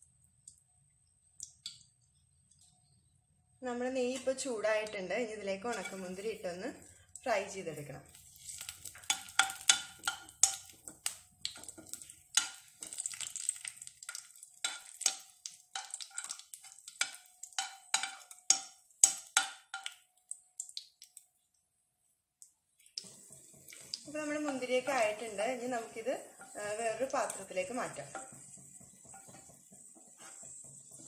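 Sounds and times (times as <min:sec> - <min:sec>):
light sizzle: 0:00.0 - 0:31.0
spatula scraping and tapping pan: 0:05.6 - 0:07.3, 0:08.1 - 0:20.0, 0:23.0 - 0:31.0.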